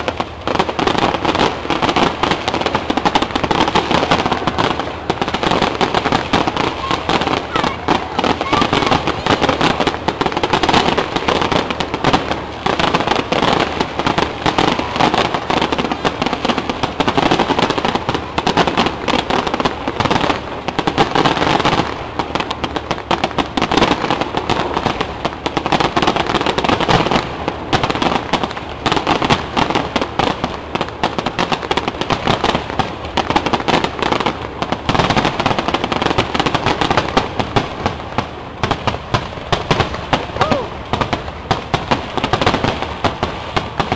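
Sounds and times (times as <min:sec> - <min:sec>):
fireworks bursting: 0:00.0 - 0:43.9.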